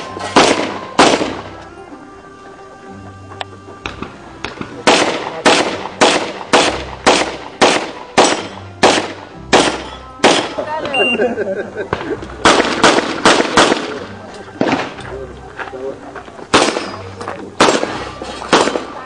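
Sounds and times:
handgun shots echoing: 0.0s - 1.6s, 3.8s - 10.7s, 11.9s - 15.1s, 16.5s - 19.0s.

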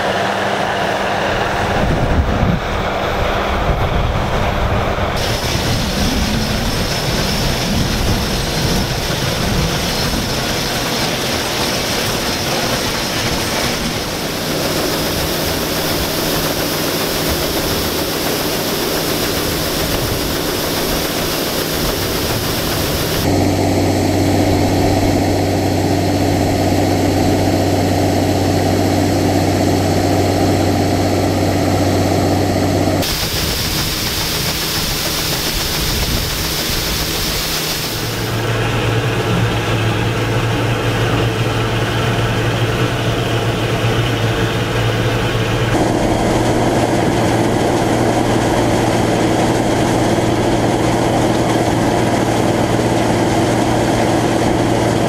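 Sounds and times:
combine harvester running: 0.0s - 55.0s
deep even hum: 12.1s - 55.0s.

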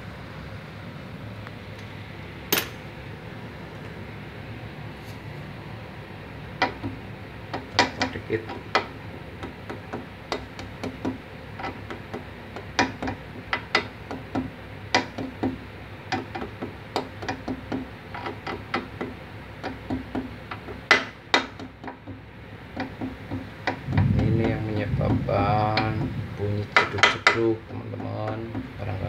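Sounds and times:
spanner clicking on a nut: 6.6s - 26.0s.

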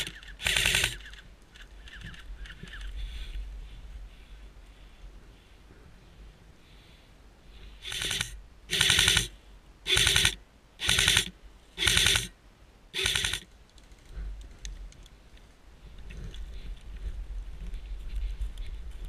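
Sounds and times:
airsoft rifle bursts: 0.0s - 2.9s, 7.8s - 12.3s, 13.0s - 13.5s.

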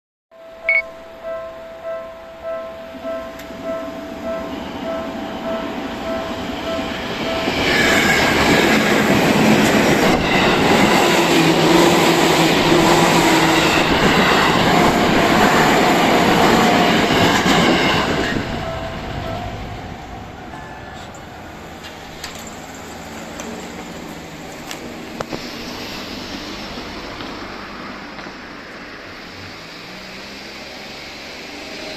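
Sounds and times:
electric train passing: 0.4s - 31.9s
level crossing bell ringing: 0.7s - 7.6s.

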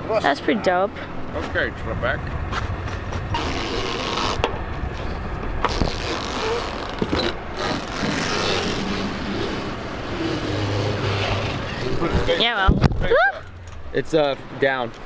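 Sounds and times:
boat engine running: 1.0s - 12.5s.

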